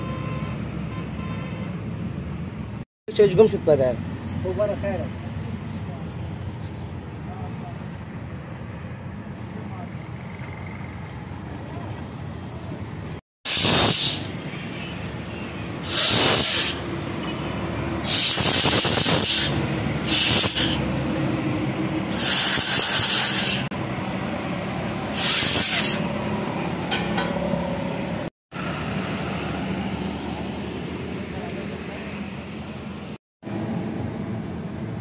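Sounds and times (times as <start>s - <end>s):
road traffic noise: 0.0s - 35.0s
compressed air blow gun hissing: 13.5s - 14.4s, 15.8s - 16.8s, 18.0s - 20.9s, 22.1s - 23.7s, 25.1s - 26.0s.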